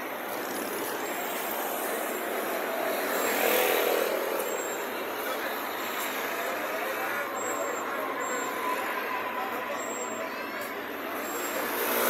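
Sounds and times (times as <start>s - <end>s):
car engines in street: 0.0s - 12.0s.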